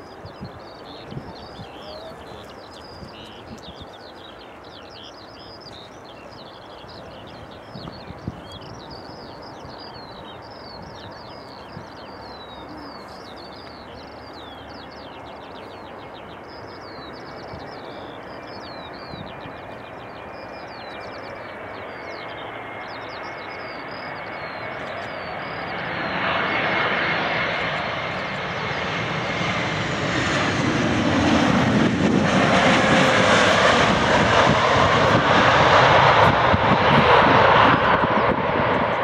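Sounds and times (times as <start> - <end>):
songbird chirping: 0.0 - 26.4
jet engines rushing: 0.0 - 39.0.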